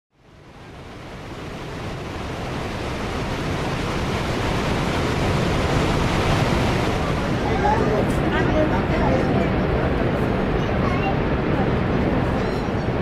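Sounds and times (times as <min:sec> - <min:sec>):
waterfall rushing: 0:00.4 - 0:13.0.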